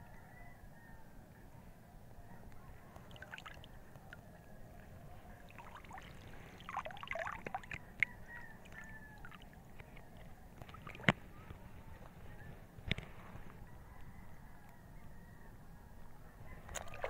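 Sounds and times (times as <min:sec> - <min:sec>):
water splashing: 0:03.0 - 0:04.2, 0:05.3 - 0:11.4, 0:16.7 - 0:17.0
water lapping against boat: 0:04.8 - 0:11.6, 0:16.7 - 0:17.0.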